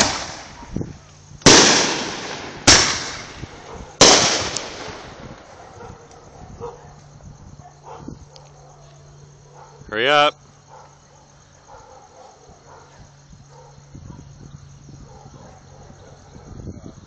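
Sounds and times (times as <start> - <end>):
fireworks bangs echoing: 0.0 - 6.0.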